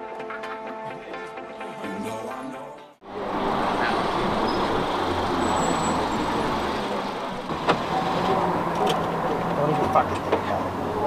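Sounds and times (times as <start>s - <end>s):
music: 0.0s - 3.1s
road noise: 3.0s - 11.0s
car engine running: 3.1s - 11.0s.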